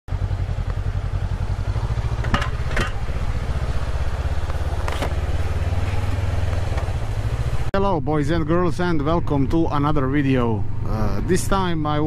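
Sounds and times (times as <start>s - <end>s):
motorcycle engine at low revs: 0.1s - 7.7s.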